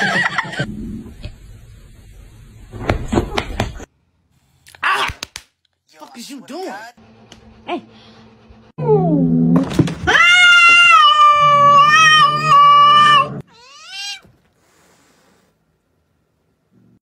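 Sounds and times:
cat yowling: 10.1 - 14.3.

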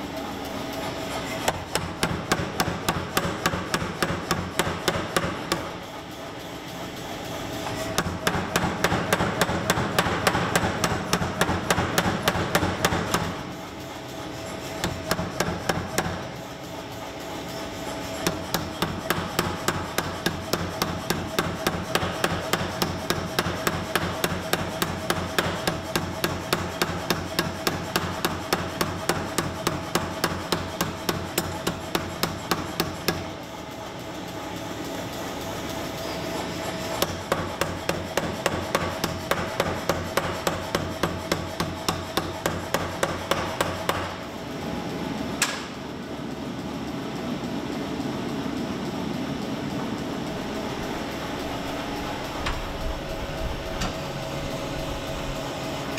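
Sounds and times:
steady machine hum: 0.0 - 55.9
power hammer striking metal: 1.5 - 5.8, 7.6 - 13.5, 14.7 - 16.4, 18.1 - 33.3, 36.9 - 44.2, 45.4 - 45.8.

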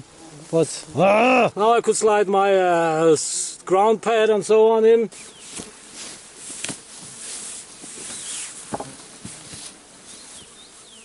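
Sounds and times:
rustling of clothing and grass: 0.0 - 11.0
soft knocks against ground: 8.7 - 9.4.

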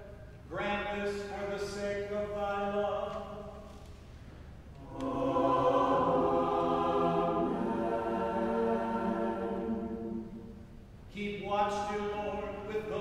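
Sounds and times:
church choir singing: 4.7 - 10.9.

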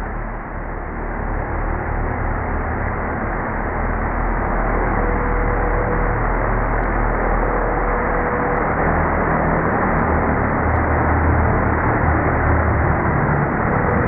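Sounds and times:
slowed drone propellers rushing: 4.6 - 14.0.

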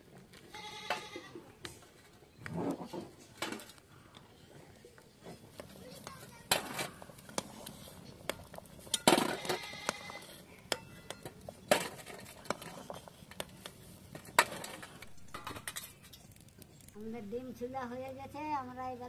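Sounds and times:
metal spatula scraping pot: 6.5 - 16.3.

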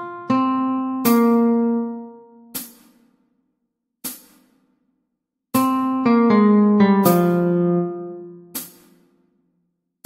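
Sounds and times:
hi-hat tick: 2.6 - 3.2.

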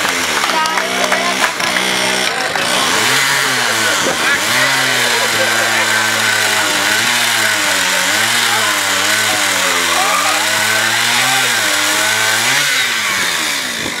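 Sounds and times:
chainsaw cutting log: 0.0 - 14.0.

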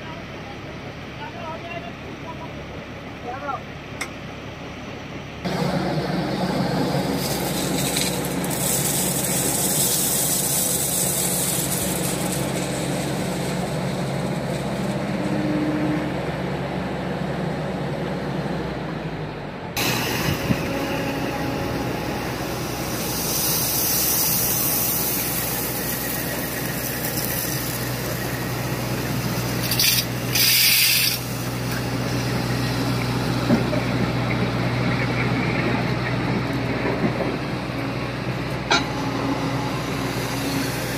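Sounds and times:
excavator diesel engine running: 0.0 - 40.9
crushed stone pouring into truck: 6.9 - 15.3, 22.9 - 32.3.

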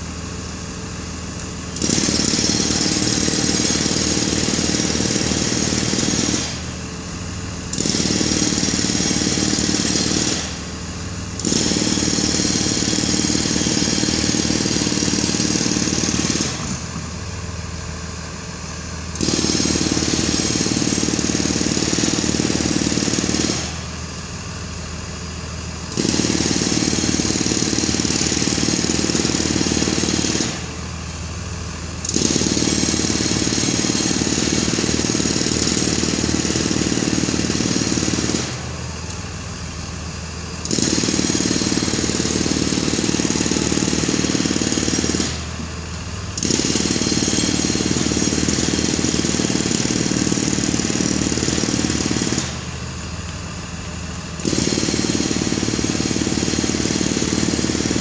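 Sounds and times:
bus engine idling roughly: 0.0 - 58.0.

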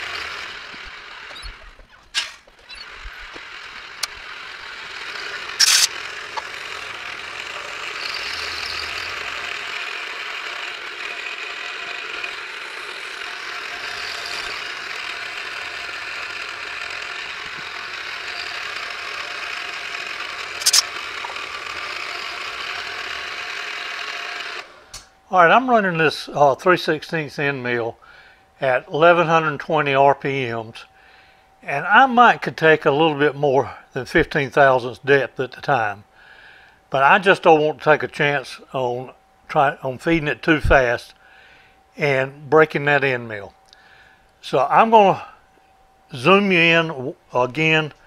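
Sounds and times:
milling machine running: 0.0 - 25.0
sharp clicks: 0.7 - 6.6, 20.4 - 22.4.

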